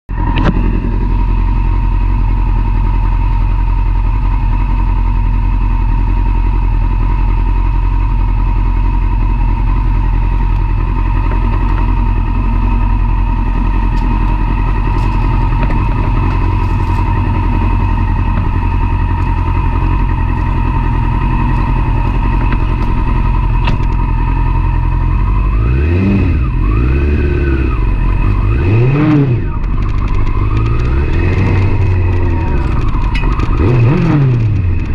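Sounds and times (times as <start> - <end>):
motorcycle engine idling and revving: 0.1 - 34.9.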